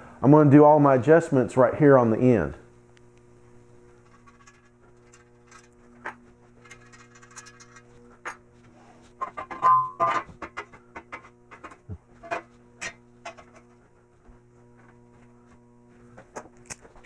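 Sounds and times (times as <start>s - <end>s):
steady low hum: 0.0s - 17.0s
steel parts clinking: 6.6s - 7.9s.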